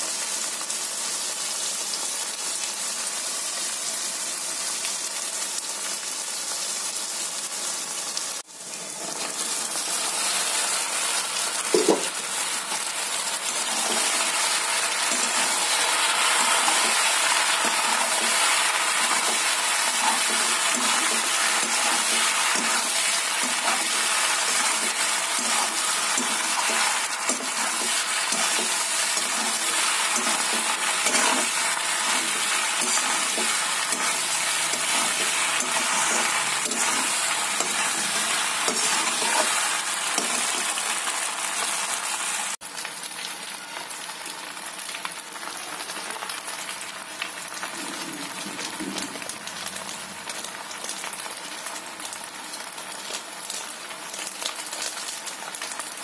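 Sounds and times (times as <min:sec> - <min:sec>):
food sizzling in oil: 0:00.0 - 0:56.0
spatula stirring in metal pan: 0:13.6 - 0:40.8.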